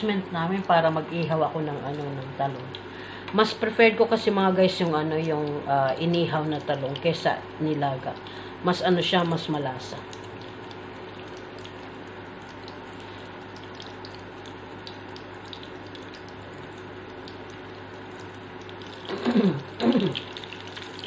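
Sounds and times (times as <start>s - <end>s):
steady hum: 0.0s - 21.0s
omelette sizzling in oil: 9.6s - 21.0s.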